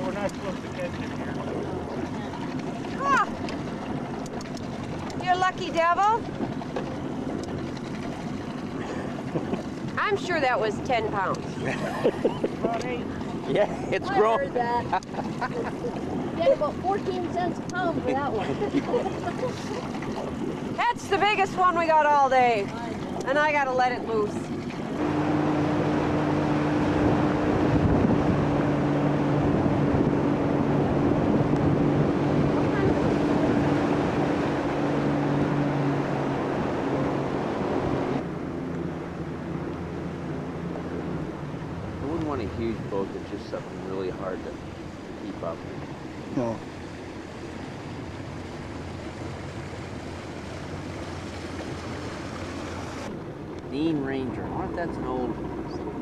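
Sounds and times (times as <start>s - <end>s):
motorboat engine humming: 0.0s - 56.0s
wind and water rushing: 0.0s - 56.0s.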